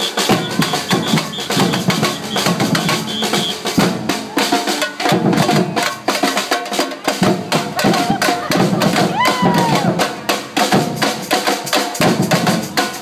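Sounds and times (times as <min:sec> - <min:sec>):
drum kit playing fast rhythm: 0:00.0 - 0:13.0.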